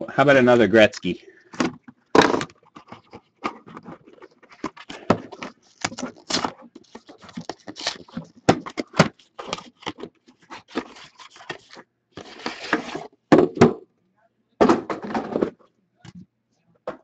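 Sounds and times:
packaging crinkling and crackling: 0:02.2 - 0:13.0
packaging tearing rustle: 0:02.6 - 0:13.0.

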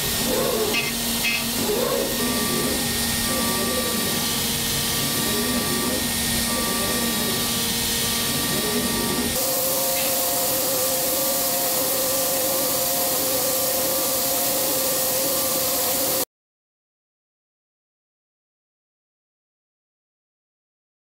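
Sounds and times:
milling machine cutting hiss: 0:00.0 - 0:16.2
spindle whine: 0:00.0 - 0:16.2.

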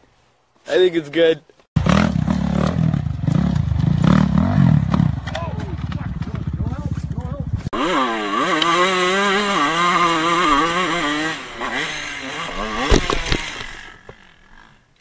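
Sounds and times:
motorcycle engine revving hard: 0:01.8 - 0:14.8
motorcycle crashing knocks: 0:12.6 - 0:14.2.

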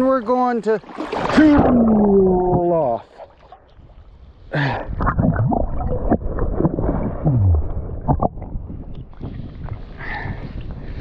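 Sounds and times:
river water sloshing and gurgling: 0:00.0 - 0:04.3
loud splash: 0:00.8 - 0:03.2.

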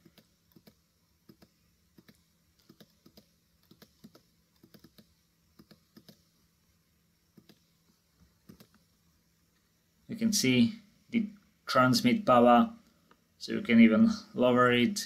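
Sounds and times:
computer mouse and keyboard clicking: 0:00.0 - 0:06.3, 0:07.4 - 0:07.7, 0:08.4 - 0:08.8.

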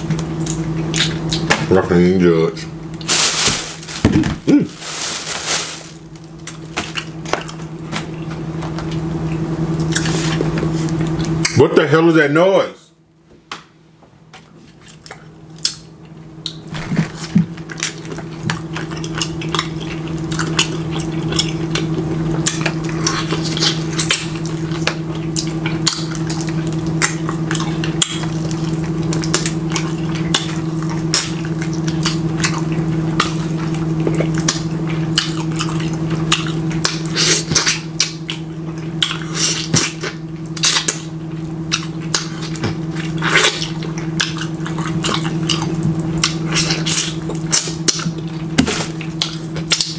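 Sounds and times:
steady low hum: 0:00.0 - 0:49.9
chewing and lip smacks: 0:00.4 - 0:01.6, 0:14.9 - 0:41.1, 0:41.7 - 0:49.9.

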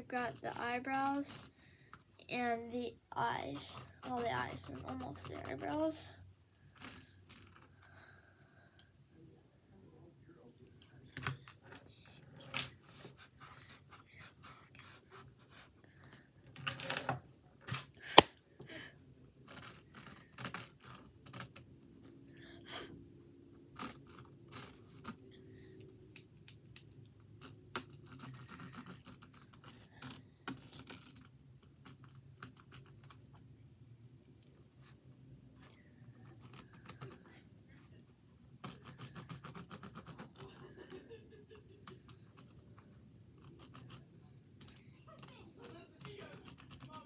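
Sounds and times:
pencil scratching on canvas: 0:00.0 - 0:01.6, 0:02.3 - 0:08.1, 0:12.4 - 0:16.3, 0:23.7 - 0:25.4, 0:27.4 - 0:33.0, 0:38.6 - 0:40.6, 0:41.9 - 0:47.0.

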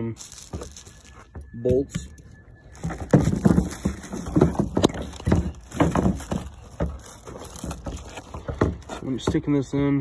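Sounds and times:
hollow plastic knocks and clunks: 0:02.8 - 0:09.6.

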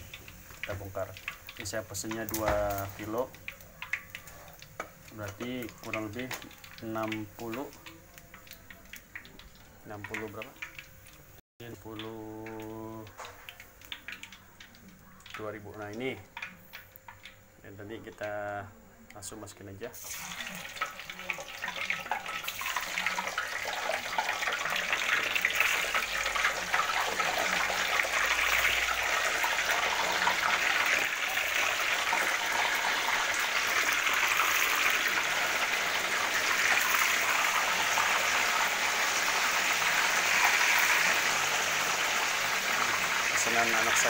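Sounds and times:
tofu sizzling in hot oil: 0:00.0 - 0:17.5, 0:19.9 - 0:44.0.

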